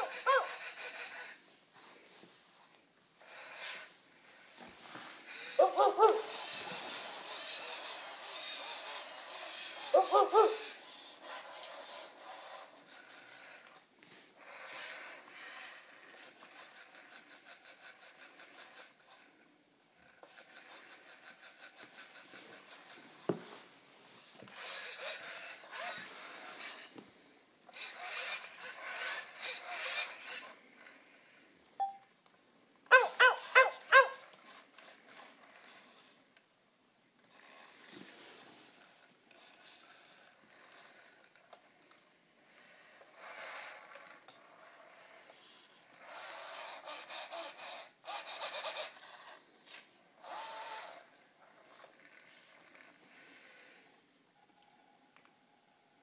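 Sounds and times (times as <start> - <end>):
robot servo motors whirring: 0.0 - 1.5, 3.2 - 19.4, 20.0 - 23.6, 24.2 - 31.9, 32.8 - 36.2, 37.2 - 54.0.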